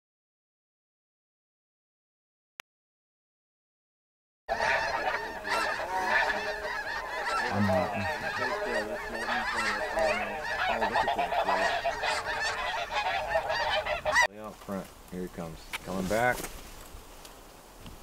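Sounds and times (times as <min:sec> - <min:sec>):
snow geese honking: 0:04.5 - 0:14.3.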